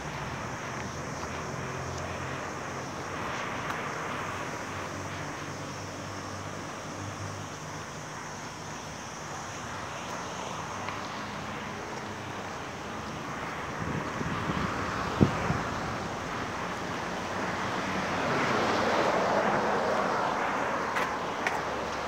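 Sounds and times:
road traffic: 0.0s - 22.0s
wind on microphone: 13.6s - 16.6s.

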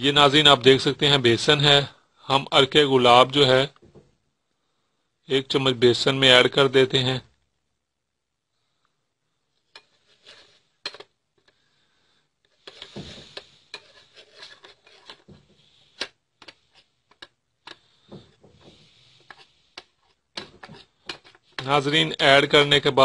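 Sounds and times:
spoon scraping a bowl: 9.7s - 11.0s, 12.5s - 21.7s.

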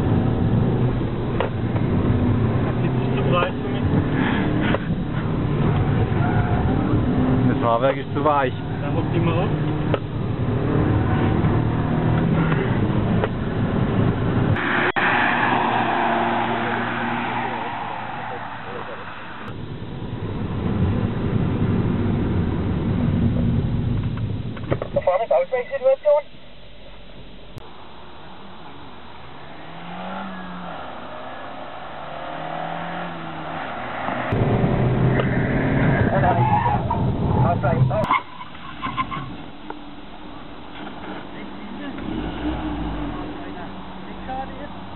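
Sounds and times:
car engine accelerating: 0.0s - 24.1s, 29.2s - 38.1s
road noise: 0.0s - 44.9s
car driving past: 14.6s - 19.5s, 29.3s - 38.0s
car engine and road rumble inside: 18.0s - 25.5s.

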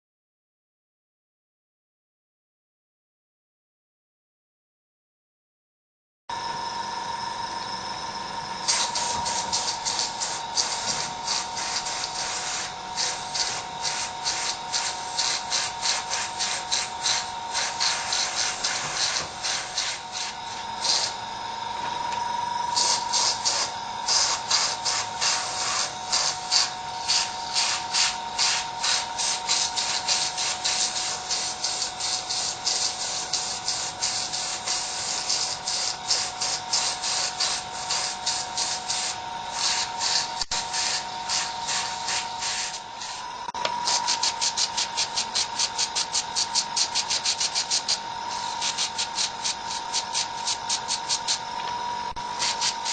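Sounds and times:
steady high hum: 6.3s - 52.9s
airbrush spraying in hissing bursts: 8.6s - 21.2s, 22.8s - 43.2s, 43.8s - 51.5s, 52.4s - 52.9s.

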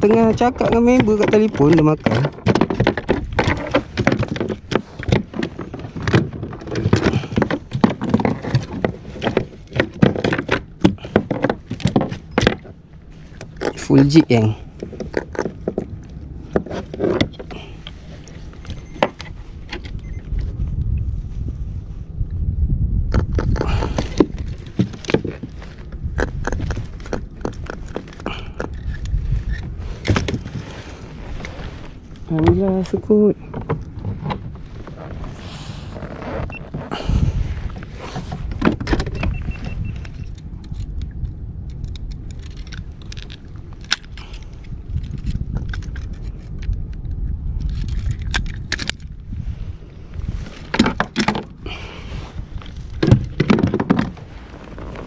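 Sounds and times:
knocks and clatters in plastic kayak: 0.0s - 13.9s, 14.7s - 19.9s, 23.1s - 28.4s, 29.8s - 40.0s, 50.4s - 55.0s
steady low rumble: 0.0s - 55.0s.

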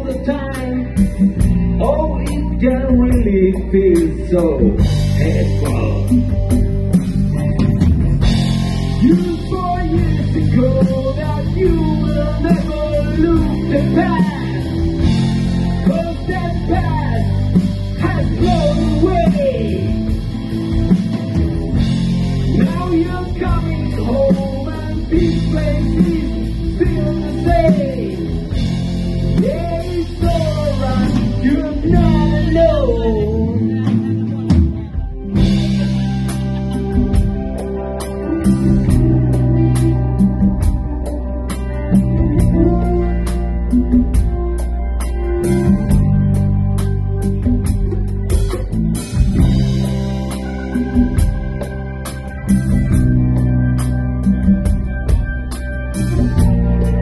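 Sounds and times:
person singing: 0.0s - 6.6s, 9.0s - 20.2s, 22.5s - 44.7s
live rock band playing: 0.0s - 57.0s.

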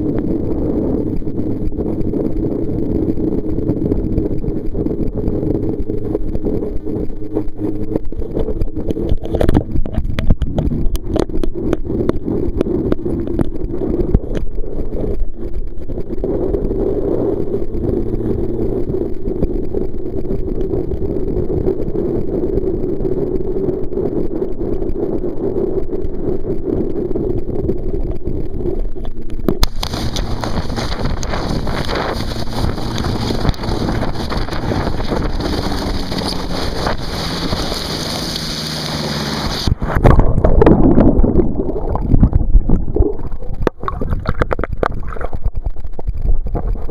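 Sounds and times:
water rushing: 0.7s - 20.4s, 29.2s - 46.9s
wind rushing: 29.6s - 45.4s.

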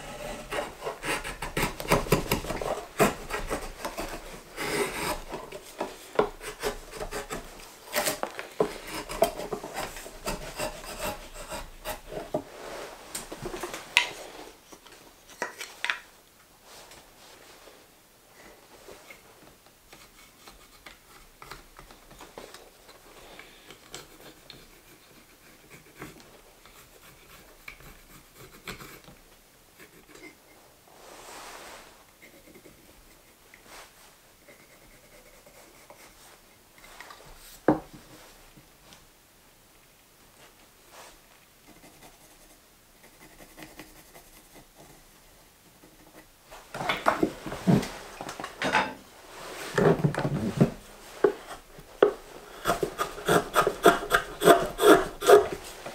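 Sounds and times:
carving gouge scraping wood: 0.0s - 12.4s, 50.6s - 55.9s
pencil scratching on wood: 0.0s - 12.4s, 24.0s - 29.1s, 51.2s - 55.9s.

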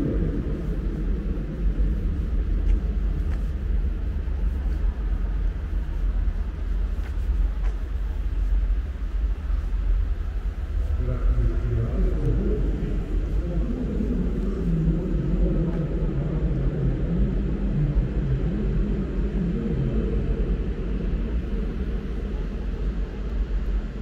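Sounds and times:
low ambient rumble: 0.0s - 24.0s.

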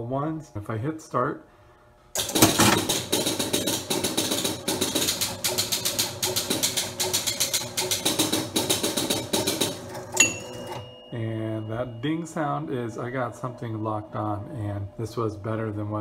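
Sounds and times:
pinball relays clicking: 2.2s - 11.0s
chime ding: 10.2s - 12.6s.

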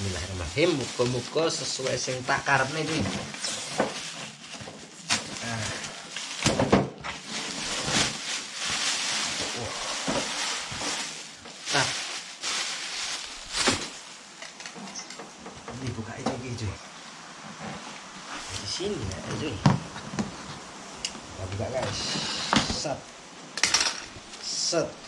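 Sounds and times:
plastic bag rustling and tearing: 0.0s - 15.2s, 18.3s - 19.5s.

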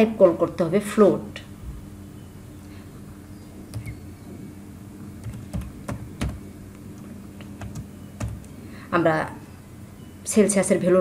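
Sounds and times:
faint low hum: 0.0s - 11.0s
keyboard typing: 3.7s - 4.0s, 5.2s - 8.6s.

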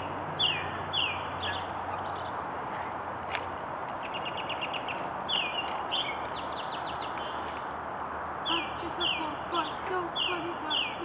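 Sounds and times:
songbirds chirping: 0.0s - 11.0s.

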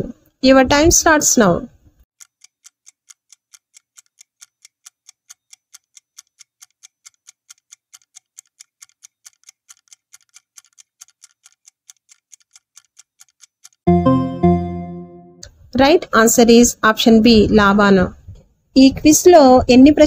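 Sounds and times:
clock ticking: 2.1s - 13.9s.

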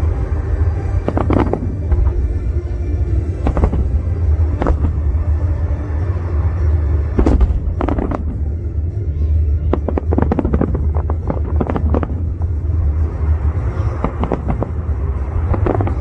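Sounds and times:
music playing: 0.0s - 16.0s
steady low rumble: 0.0s - 16.0s
fireworks bursting: 0.9s - 2.6s, 3.3s - 5.6s, 7.0s - 8.8s, 9.4s - 16.0s.

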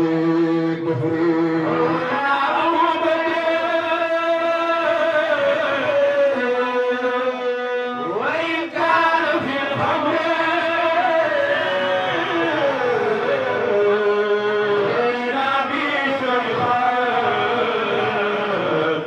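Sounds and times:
lead voice singing into microphone: 0.0s - 19.0s
men chanting together: 8.2s - 19.0s.

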